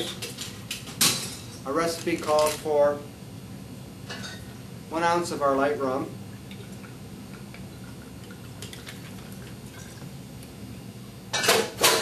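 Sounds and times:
liquid trickling over ice: 6.3s - 10.1s.

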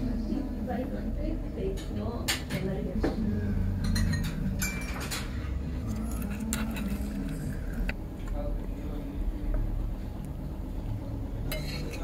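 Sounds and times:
low background murmur: 0.0s - 12.0s
cutlery clinking on plate: 3.8s - 5.3s, 11.5s - 12.0s.

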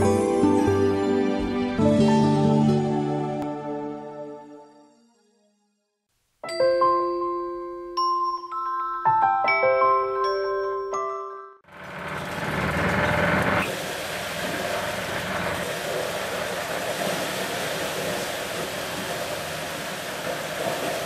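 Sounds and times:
petrol engine hum: 11.7s - 21.0s.

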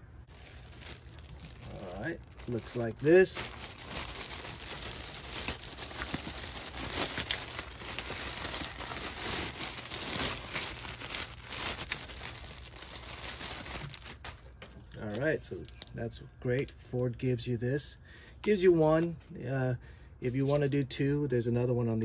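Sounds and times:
plastic bag crinkling: 0.3s - 14.8s.

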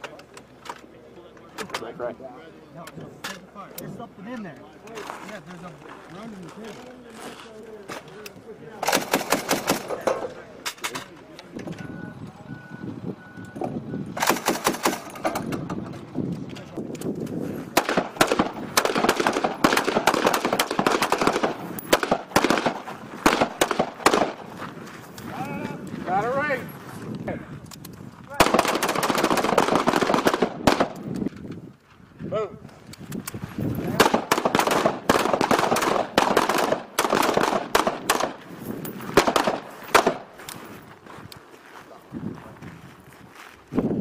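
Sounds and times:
rifle shots: 8.8s - 10.1s, 14.2s - 15.4s, 17.7s - 24.5s, 28.4s - 31.1s, 33.9s - 38.5s, 39.1s - 40.3s.

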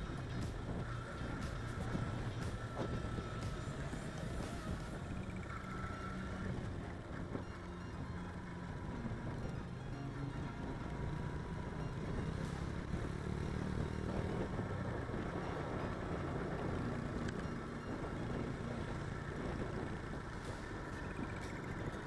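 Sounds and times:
wind noise: 0.0s - 5.3s, 14.0s - 22.0s
motorcycle engine running: 0.0s - 22.0s
road noise: 0.0s - 22.0s.

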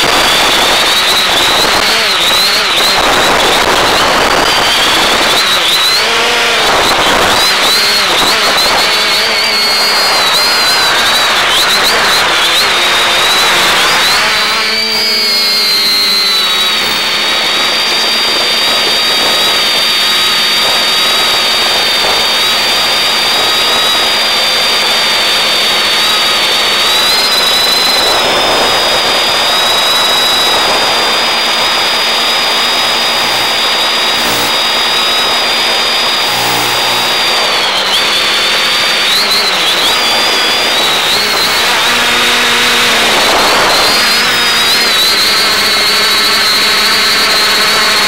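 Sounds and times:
drone motors whining: 0.0s - 48.0s.

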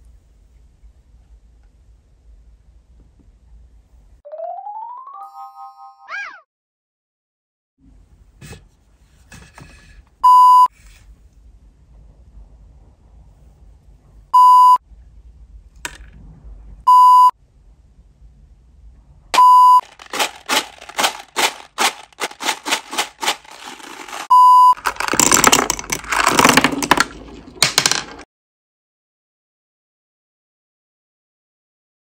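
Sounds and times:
loud electronic beep: 19.4s - 19.8s
candies rattling in cardboard box: 19.8s - 28.2s.

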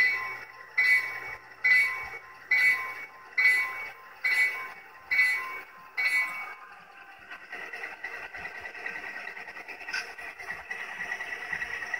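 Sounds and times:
locomotive bell ringing through speaker: 0.0s - 6.6s.

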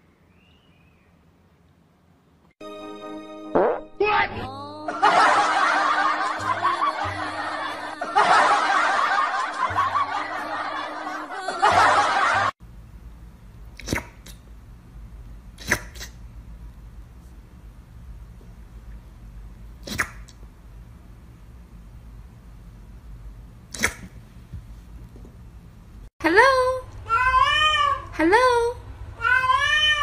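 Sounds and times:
background music: 2.6s - 12.5s
crowd laughter: 4.9s - 12.6s.

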